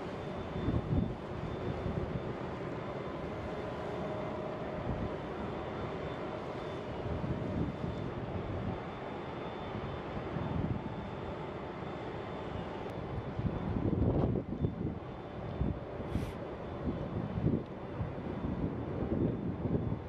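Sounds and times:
wind gusts on microphone: 0:00.1 - 0:02.4, 0:13.0 - 0:20.0.

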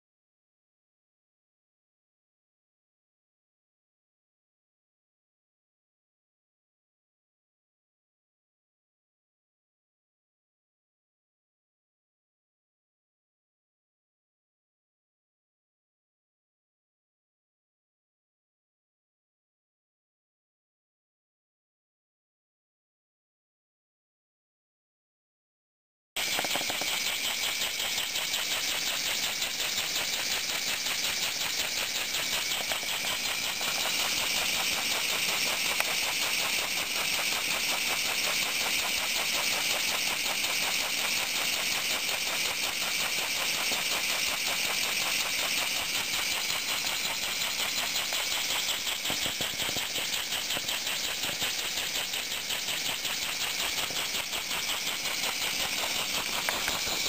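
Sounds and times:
model engine clicking beat: 0:26.2 - 0:57.0.

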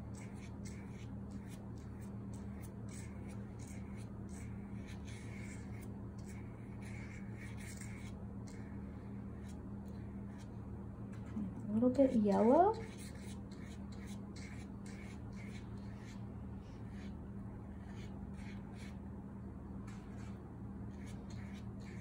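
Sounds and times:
steady low hum: 0:00.0 - 0:22.0
paintbrush stroking paper: 0:00.2 - 0:10.5, 0:12.0 - 0:18.9.

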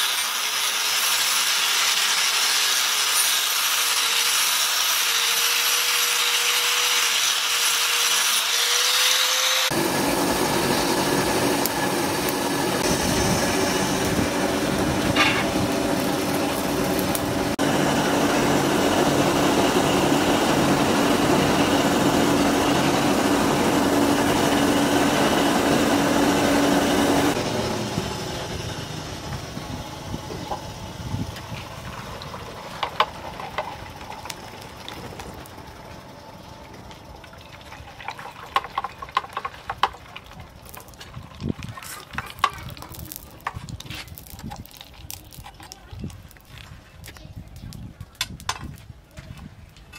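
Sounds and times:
angle grinder grinding steel: 0:00.0 - 0:31.7
forge rushing drone: 0:08.8 - 0:37.2
oil quench crackling: 0:09.7 - 0:17.8, 0:29.2 - 0:48.8.

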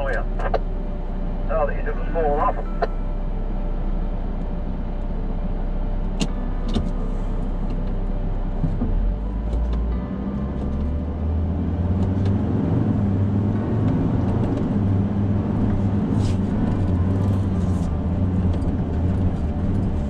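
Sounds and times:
truck engine drone: 0:00.0 - 0:20.0.

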